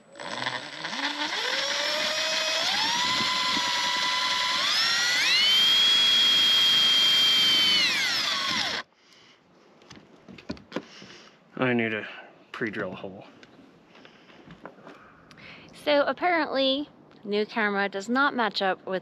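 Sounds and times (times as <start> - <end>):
impact driver motor whine: 0.0 - 8.9.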